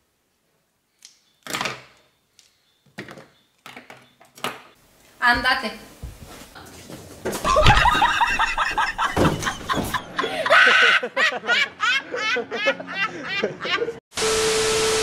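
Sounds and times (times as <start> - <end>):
man laughing hard: 7.4 - 14.0.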